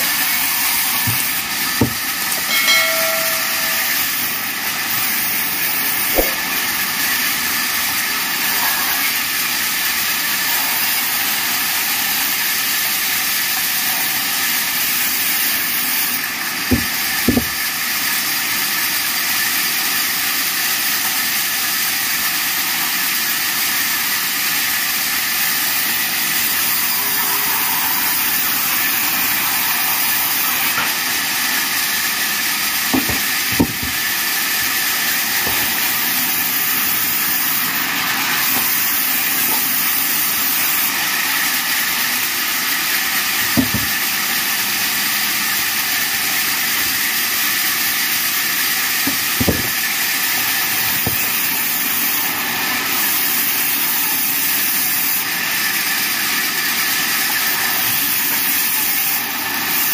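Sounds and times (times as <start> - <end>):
band saw whining: 0.0 - 20.0, 22.1 - 59.9
wood knocking on saw table: 1.0 - 3.8, 16.7 - 17.6, 33.0 - 34.1, 35.4 - 35.9, 43.5 - 44.0, 49.1 - 49.8, 50.8 - 51.4.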